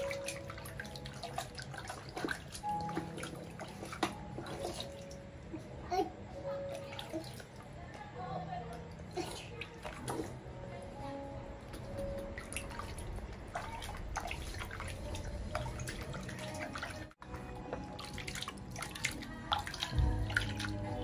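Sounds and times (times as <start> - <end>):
water splashing in a plastic basin: 0.0 - 5.3, 9.0 - 10.5, 11.6 - 21.0.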